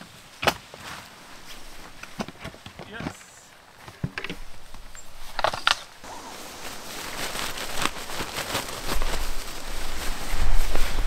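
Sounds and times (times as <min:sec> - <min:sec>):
tent fabric rustling and scraping: 0:00.0 - 0:11.0
wind rumble on microphone: 0:07.6 - 0:11.0.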